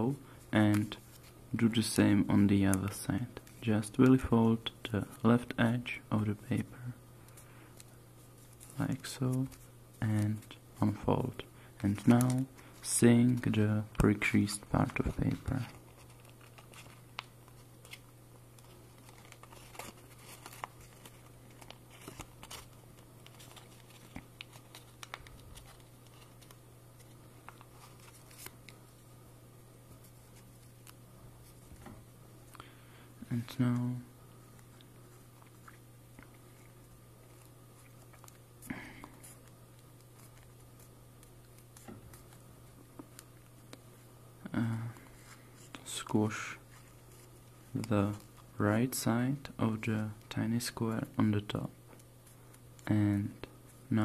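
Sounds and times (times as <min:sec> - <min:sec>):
steady low hum: 0:00.0 - 0:54.0
paper rustling and crinkling: 0:07.2 - 0:11.0, 0:11.8 - 0:28.8, 0:33.6 - 0:43.8, 0:46.7 - 0:48.5.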